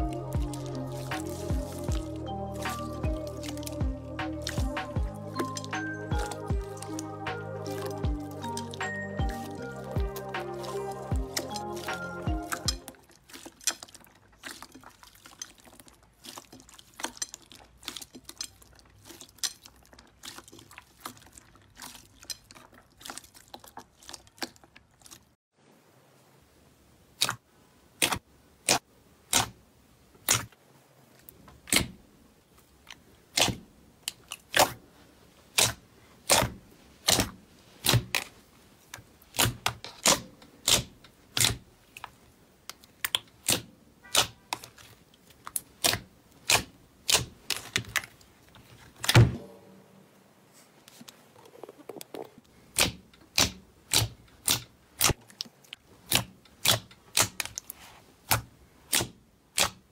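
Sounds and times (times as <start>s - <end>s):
slime popping and clicking: 39.3s - 44.9s, 52.7s - 55.2s.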